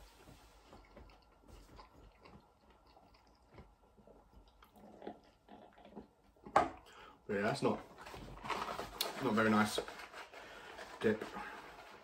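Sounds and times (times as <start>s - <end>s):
man chewing: 0.4s - 6.5s.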